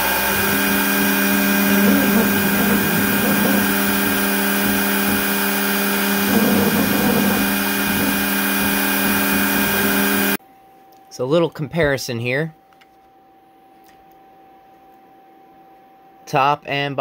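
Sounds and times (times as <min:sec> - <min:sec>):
bit engraving metal: 0:00.0 - 0:10.4
router spindle humming: 0:00.0 - 0:10.4.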